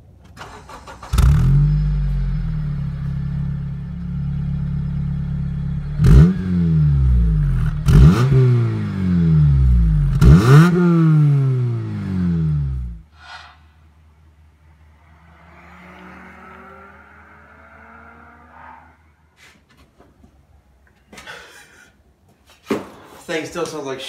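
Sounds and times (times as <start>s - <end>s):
car engine starting and idling: 0.0s - 13.1s, 13.8s - 19.4s
engine revving: 0.4s - 13.5s, 14.1s - 19.3s.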